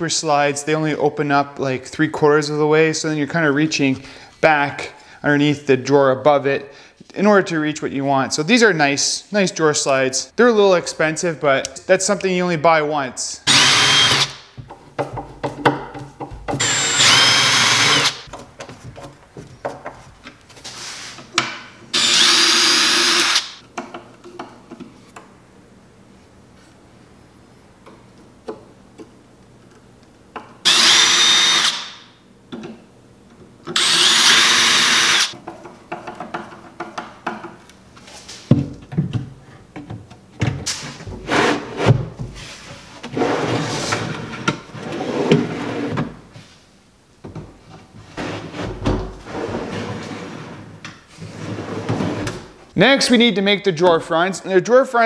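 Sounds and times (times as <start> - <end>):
cordless drill driving screws: 13.5 - 14.4, 16.6 - 18.3, 21.9 - 23.6, 30.7 - 32.1, 33.8 - 35.4.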